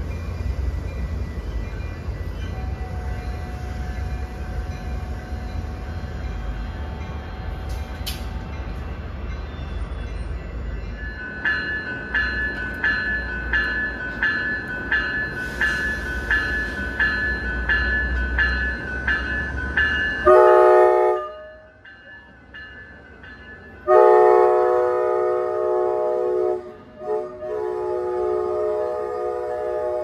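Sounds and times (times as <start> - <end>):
train low rumble: 0.0 - 30.0
bell ringing: 8.6 - 20.4.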